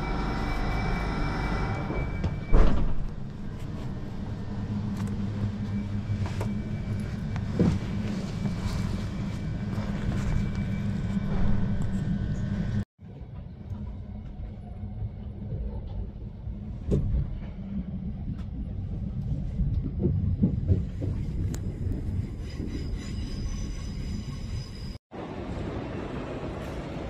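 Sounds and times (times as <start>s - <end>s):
train carriage low rumble: 0.0s - 27.0s.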